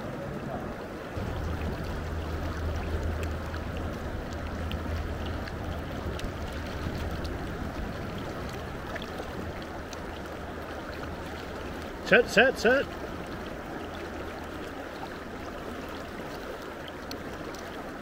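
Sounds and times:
river current rushing: 0.0s - 18.0s
low rumble: 1.2s - 11.8s.

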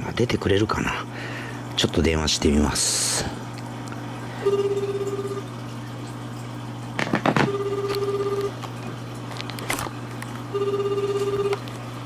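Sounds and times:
telephone ringback tone: 4.4s - 5.5s, 7.3s - 8.6s, 10.5s - 11.6s.

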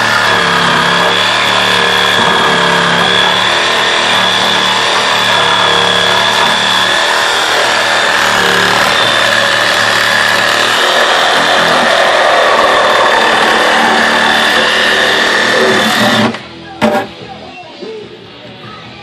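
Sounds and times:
reciprocating saw cutting wood: 0.0s - 16.4s.

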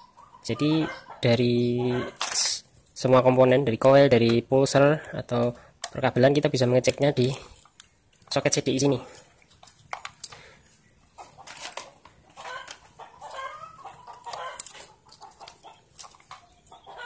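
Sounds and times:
chickens clucking: 0.0s - 2.6s, 8.8s - 17.0s.

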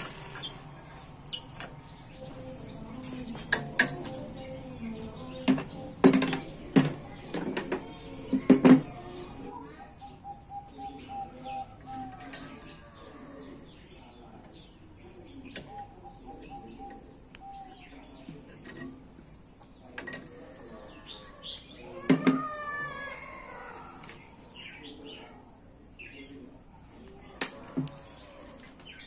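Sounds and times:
birds calling: 0.0s - 29.0s
pliers clicking on steel tube: 3.5s - 4.2s.

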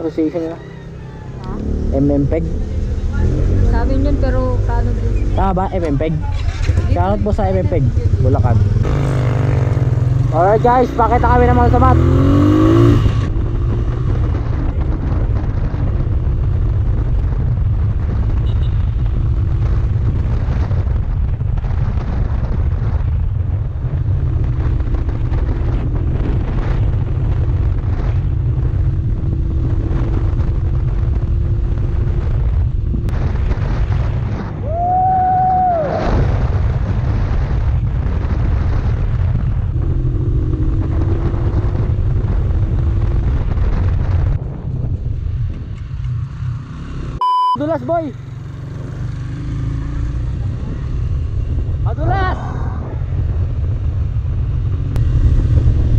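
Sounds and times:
motorcycle engine running: 0.0s - 34.2s, 36.9s - 52.2s
wind buffeting microphone: 0.0s - 47.1s, 48.2s - 55.9s
steady beep-like tone: 47.2s - 47.6s.

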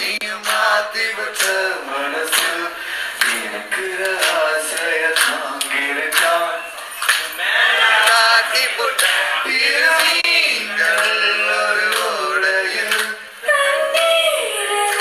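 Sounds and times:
man singing into a microphone: 0.0s - 6.7s.

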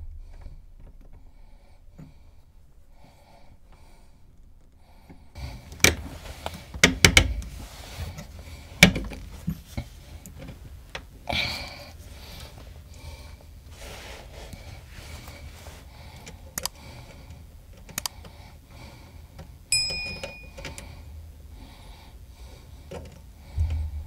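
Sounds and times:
tools and parts clattering: 19.8s - 20.8s.

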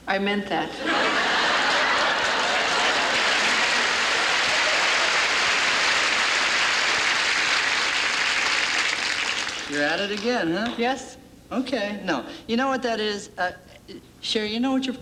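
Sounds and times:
audience laughing: 0.7s - 7.3s
audience applauding: 1.0s - 10.2s.

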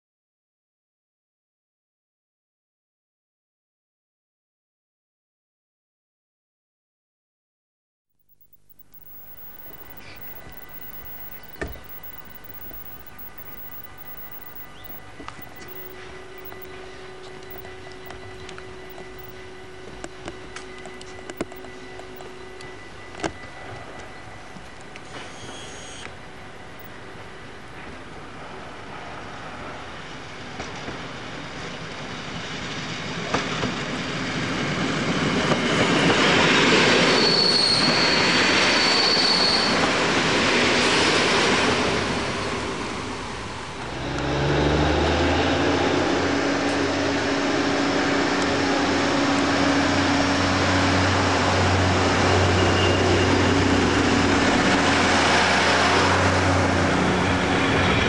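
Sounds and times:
train wheel squeal: 8.4s - 34.7s, 35.6s - 43.6s, 51.7s - 58.0s
train engine hum: 8.8s - 37.3s, 38.5s - 58.0s
train passing: 8.9s - 58.0s.

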